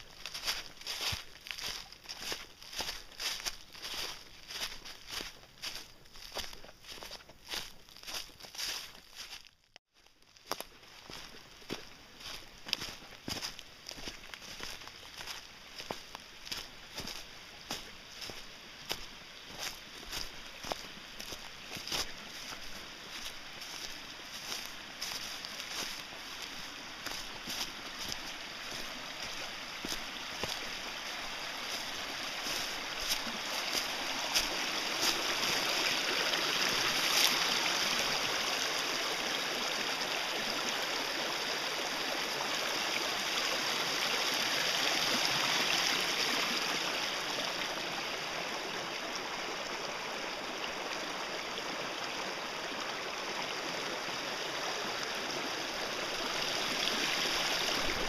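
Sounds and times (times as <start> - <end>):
stream running over rocks: 0.0 - 58.0.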